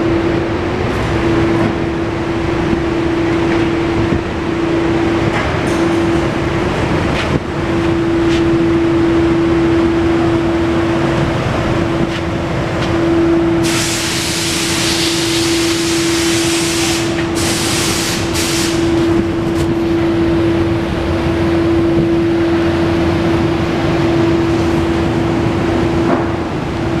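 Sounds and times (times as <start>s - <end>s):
constant droning tone: 0.0s - 13.7s, 18.8s - 27.0s
workshop machine hum: 0.0s - 27.0s
loud hiss: 13.6s - 19.0s.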